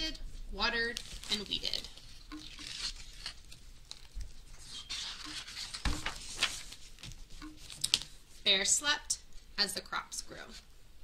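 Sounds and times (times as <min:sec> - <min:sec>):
book pages rustling: 0:00.9 - 0:08.5
soft knocks of book page: 0:05.2 - 0:08.1.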